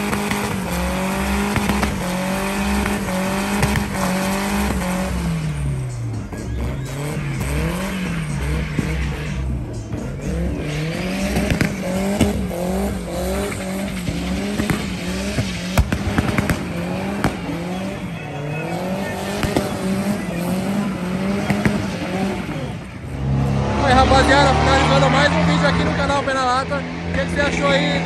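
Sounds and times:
car engine revving: 0:00.0 - 0:28.0
tyres screeching: 0:05.6 - 0:15.2.

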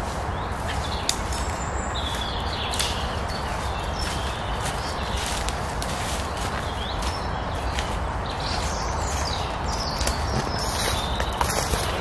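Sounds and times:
bird chirping: 0:00.0 - 0:12.0
footsteps on forest floor: 0:00.0 - 0:12.0
twigs snapping: 0:02.6 - 0:03.1.

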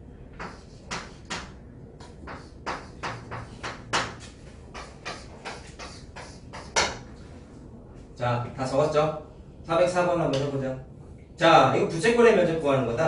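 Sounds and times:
chalk scratching on chalkboard: 0:00.3 - 0:07.5.

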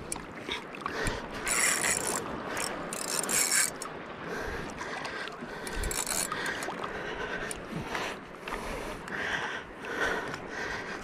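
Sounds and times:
fishing reel buzzing: 0:01.4 - 0:03.9, 0:05.7 - 0:06.7.

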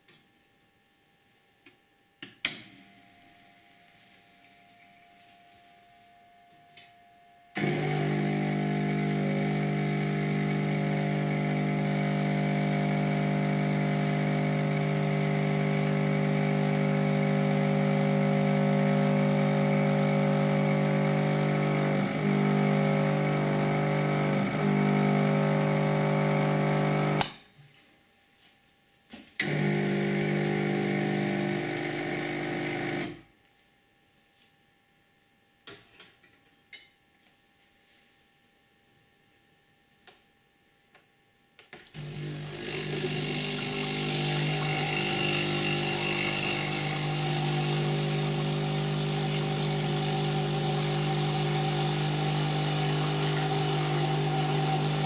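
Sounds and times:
espresso machine pump humming: 0:07.6 - 0:27.2, 0:29.4 - 0:33.2, 0:42.0 - 0:55.0.

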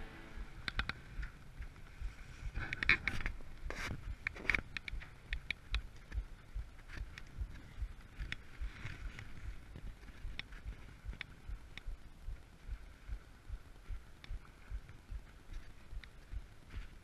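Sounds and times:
sharp clicks: 0:00.6 - 0:02.0, 0:02.6 - 0:10.5.

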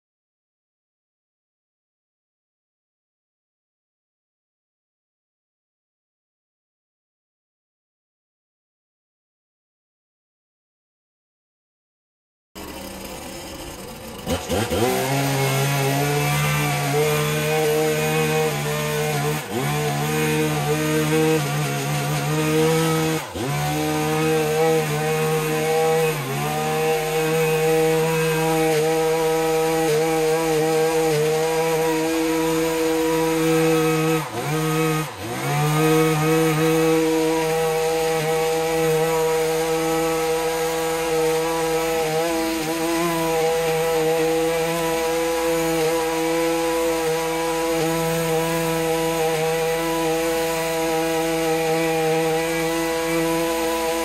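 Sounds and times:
two-stroke engine running flat out: 0:12.6 - 0:54.0.

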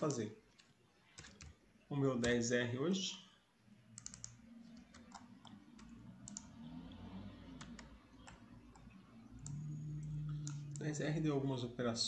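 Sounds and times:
mouse and keyboard clicks: 0:04.0 - 0:06.5
low hum: 0:04.0 - 0:11.4.

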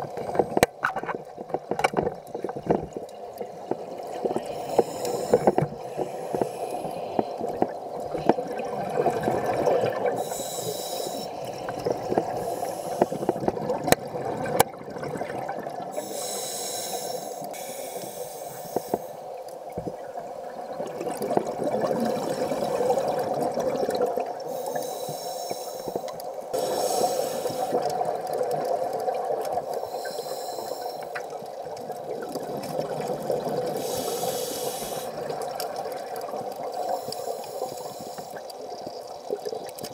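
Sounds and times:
exhaled bubbles gurgling: 0:00.0 - 0:39.9
regulator inhale hiss: 0:04.3 - 0:07.6, 0:10.1 - 0:13.5, 0:15.9 - 0:19.3, 0:24.4 - 0:27.9, 0:29.6 - 0:31.4, 0:33.7 - 0:35.2, 0:36.6 - 0:38.5.

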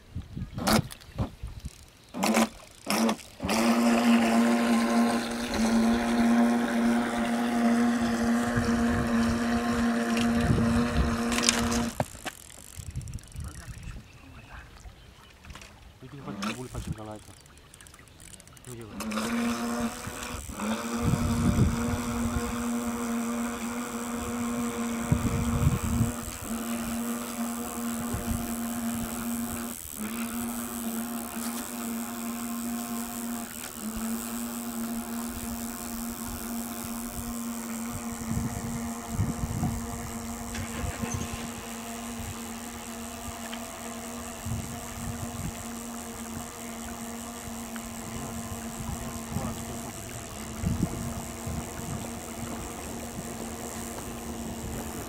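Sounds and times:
steady motor hum: 0:00.0 - 0:55.0
wind buffeting microphone: 0:08.0 - 0:11.9, 0:12.7 - 0:14.6, 0:20.0 - 0:22.8, 0:24.1 - 0:26.6, 0:36.2 - 0:42.5, 0:44.3 - 0:46.6, 0:48.0 - 0:55.0.

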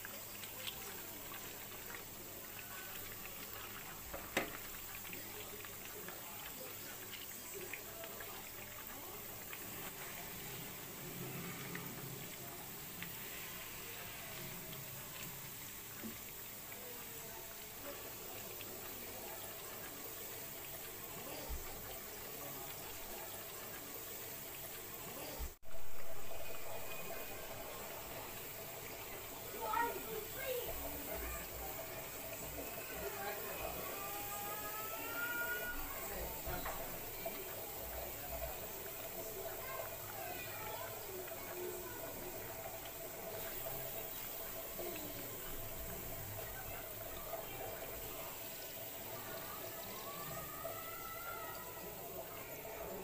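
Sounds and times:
oil crackling and popping: 0:00.0 - 0:25.6
food deep-frying in oil: 0:00.0 - 0:53.0.

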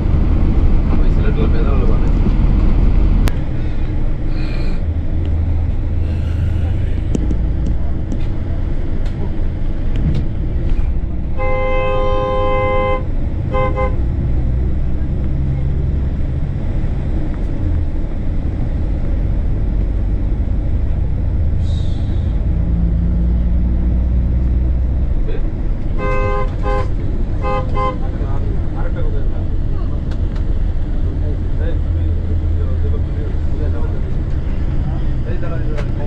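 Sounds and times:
low rumble of road traffic: 0:00.0 - 0:36.0
vehicle horn honking: 0:11.3 - 0:14.0, 0:26.0 - 0:28.1.

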